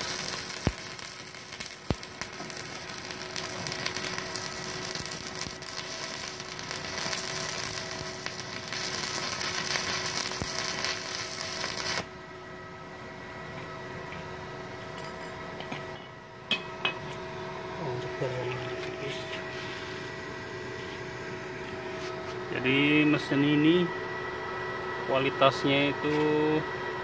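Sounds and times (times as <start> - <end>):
welding arc crackling and sizzling: 0.0 - 12.1
steady hum: 0.0 - 27.0.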